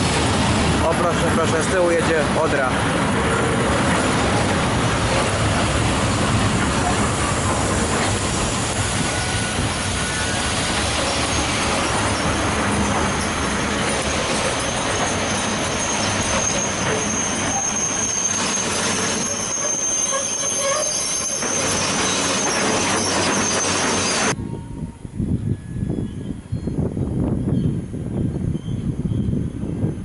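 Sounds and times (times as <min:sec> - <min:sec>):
train wheels rumbling on rails: 0:00.0 - 0:24.4
high-pitched wheel squeal: 0:06.8 - 0:24.4.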